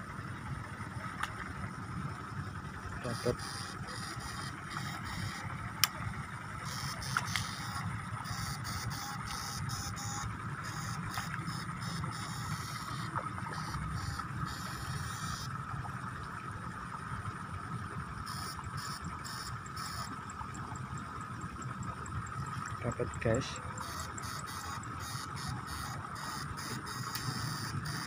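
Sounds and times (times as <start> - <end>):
high-pitched electrical whine: 3.0 - 5.8, 6.6 - 15.7, 18.2 - 28.0.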